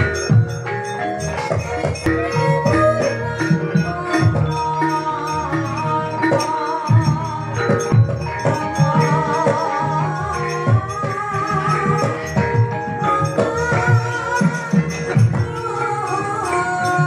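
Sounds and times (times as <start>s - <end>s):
gamelan ensemble playing: 0.0s - 17.0s
wavering melody line: 0.0s - 17.0s.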